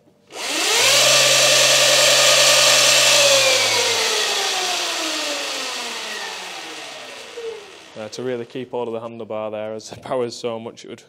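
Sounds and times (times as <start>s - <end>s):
electric motor whine: 0.3s - 8.5s.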